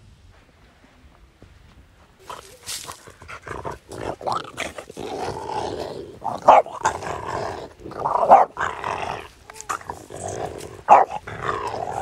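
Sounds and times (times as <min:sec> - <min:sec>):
dog play-growling: 0:02.3 - 0:12.0
dog barking: 0:06.4 - 0:06.8, 0:08.0 - 0:08.6, 0:10.9 - 0:11.2.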